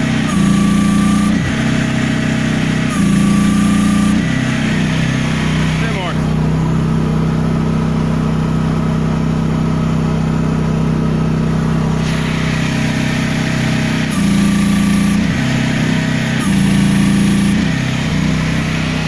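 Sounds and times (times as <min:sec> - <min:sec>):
excavator engine at high throttle: 0:00.0 - 0:19.0
thin hydraulic whine: 0:00.0 - 0:19.0
hydraulic hiss: 0:11.9 - 0:19.0.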